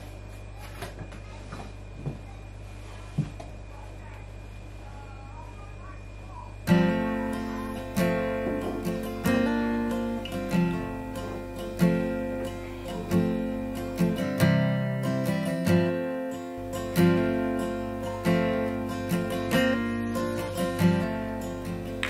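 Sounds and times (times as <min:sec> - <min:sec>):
acoustic guitar strumming chords: 0:06.5 - 0:22.0.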